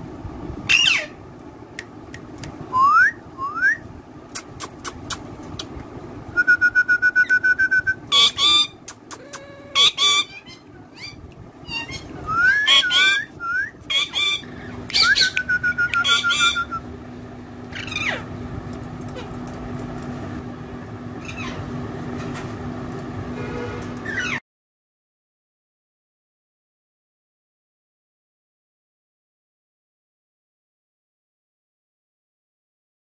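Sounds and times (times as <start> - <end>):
parakeet whistling and calling: 0.7 - 1.2, 6.4 - 8.8, 9.7 - 16.8, 17.7 - 18.2, 21.2 - 21.6.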